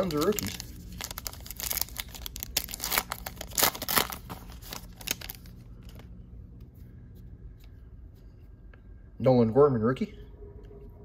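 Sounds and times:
wrapper tearing and crinkling: 0:00.0 - 0:06.1.

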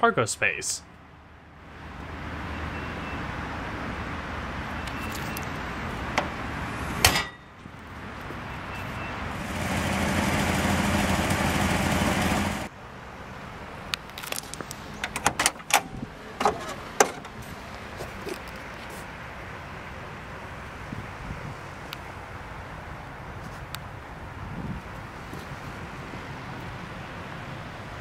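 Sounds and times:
outdoor rushing noise: 0:01.7 - 0:13.8.

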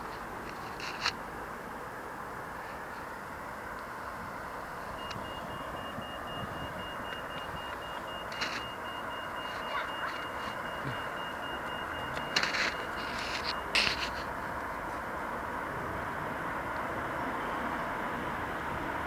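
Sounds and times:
pedestrian signal bleeping: 0:04.7 - 0:14.2.

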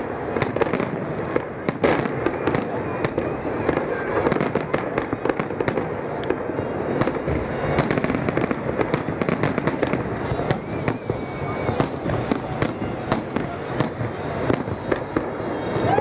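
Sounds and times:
fireworks bursting with bangs and crackles: 0:00.0 - 0:16.0.

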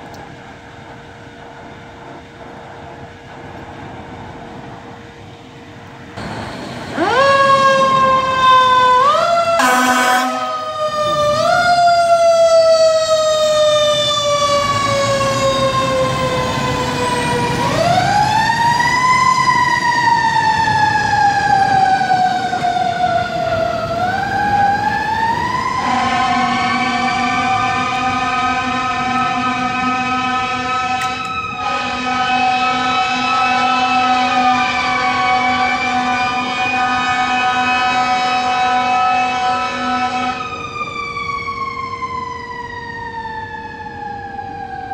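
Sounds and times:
air horn blast: 0:09.6 - 0:10.6, 0:25.8 - 0:40.4.

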